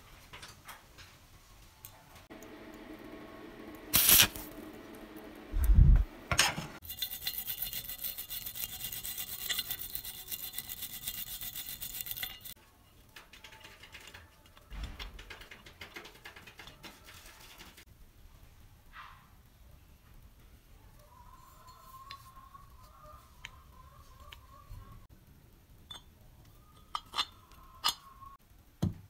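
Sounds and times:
abrasive cloth rubbing metal: 6.8s - 12.6s.

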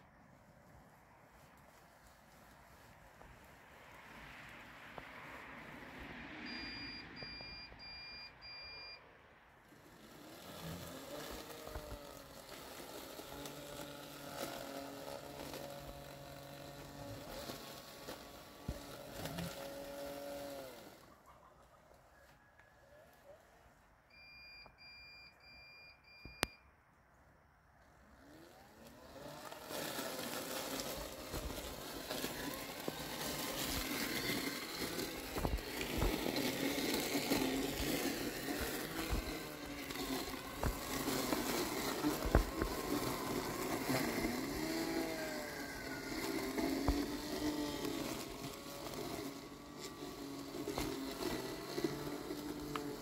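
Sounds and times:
robotic mower beeping: 6.4s - 9.0s, 9.8s - 21.0s, 24.1s - 26.6s, 28.2s - 53.0s
mower cutting motor running: 9.6s - 21.1s, 27.9s - 53.0s.

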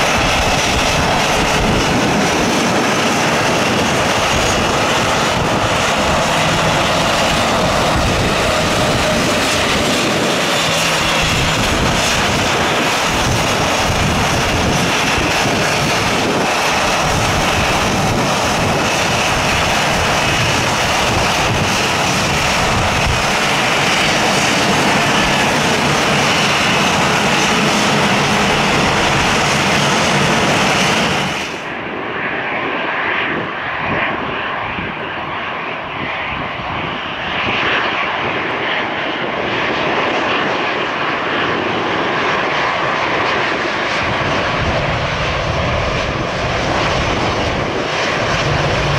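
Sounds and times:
high engine whine: 0.0s - 48.9s
jet engines roaring: 0.0s - 48.9s.

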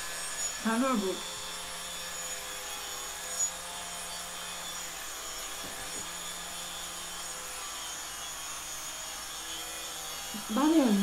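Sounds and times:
mechanical drone with whines: 0.0s - 11.0s.

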